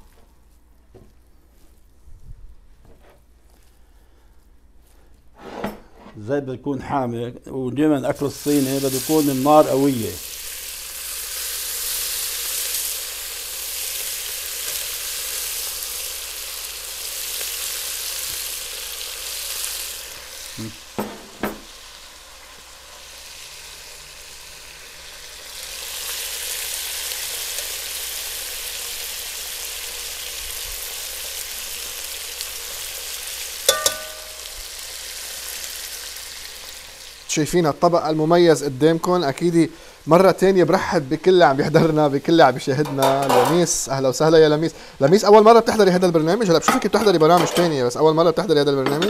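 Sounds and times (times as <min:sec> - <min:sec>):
meat sizzling in oil: 0:08.2 - 0:47.4
knocks: 0:21.0 - 0:21.7
ringing clink: 0:33.7 - 0:34.4.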